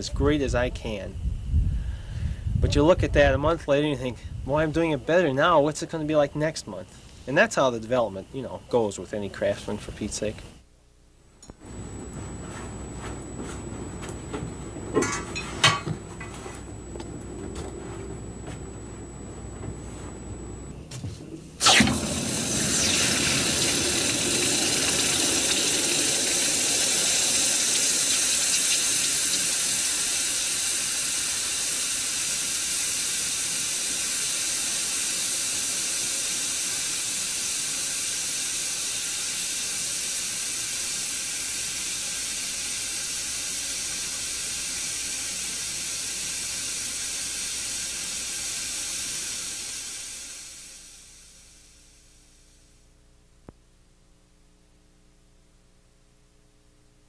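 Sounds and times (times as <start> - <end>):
steam hissing: 11.5 - 52.7
hot metal sizzling in water: 21.6 - 51.8.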